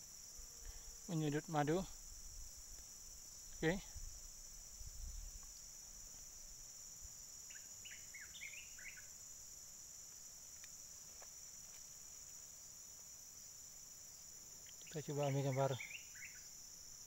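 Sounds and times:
insect chorus trilling: 0:00.0 - 0:17.0
bird chirps: 0:07.5 - 0:09.1, 0:14.8 - 0:16.5.

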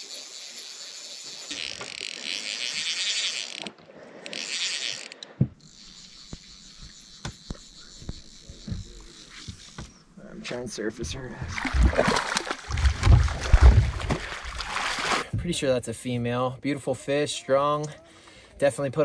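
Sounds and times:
fly reel ratchet clicking: 0:00.0 - 0:10.0.

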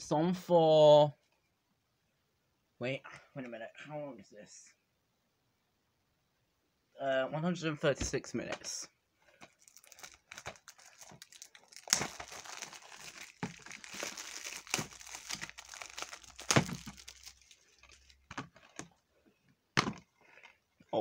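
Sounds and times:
plastic shrink-wrap crinkling: 0:09.4 - 0:18.9.

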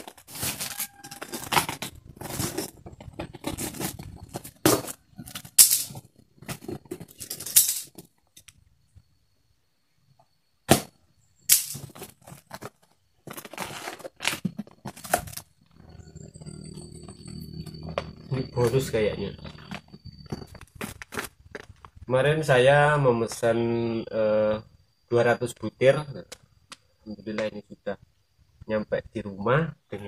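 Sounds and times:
cardboard crackles and rips: 0:00.0 - 0:05.0, 0:11.8 - 0:15.4.

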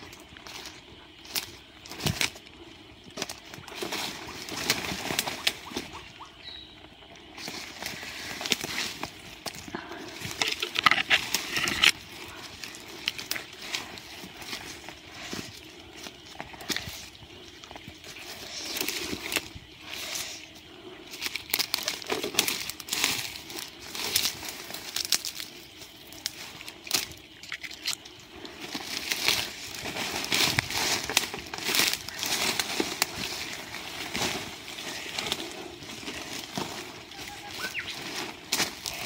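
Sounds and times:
footsteps through dry leaves: 0:00.0 - 0:17.2, 0:28.6 - 0:39.0
leaves rustling and crackling: 0:00.0 - 0:39.0.

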